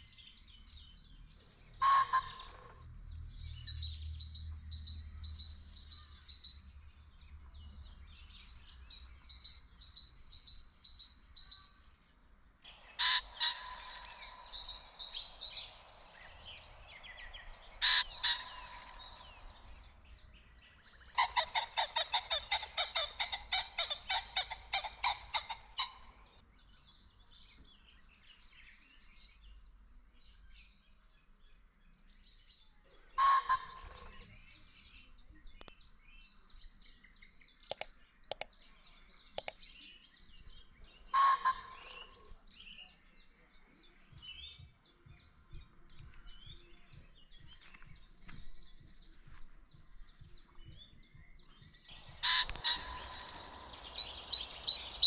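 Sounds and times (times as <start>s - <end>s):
birds chirping and singing: 0.0s - 12.1s, 12.7s - 55.0s.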